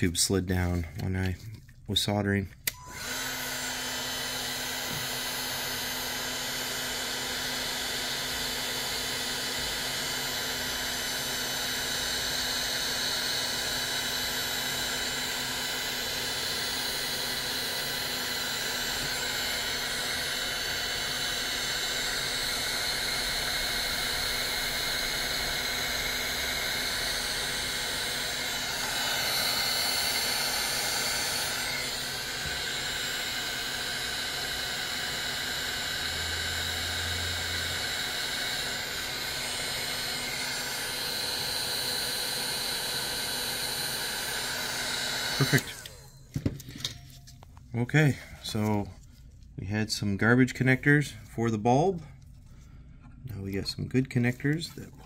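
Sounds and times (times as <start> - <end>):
heat gun blowing hot air: 2.6 - 46.3.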